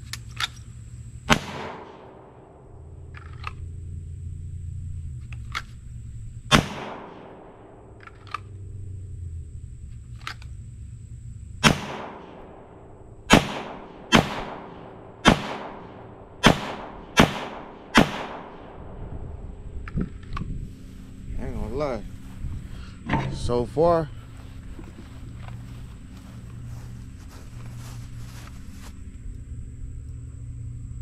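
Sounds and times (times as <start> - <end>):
pistol shots: 1.3 - 2.6, 6.5 - 7.8, 11.6 - 12.7, 13.3 - 18.8.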